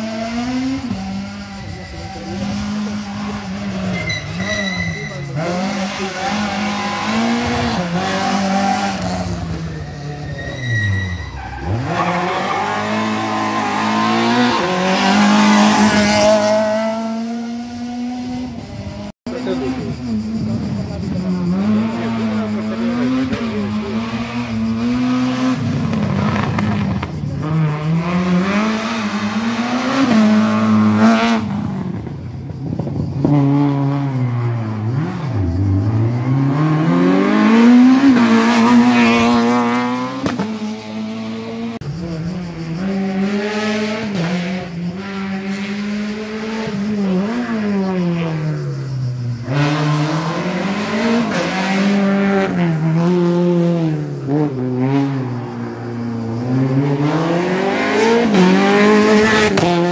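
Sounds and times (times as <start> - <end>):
car engines revving hard: 0.0 - 59.9.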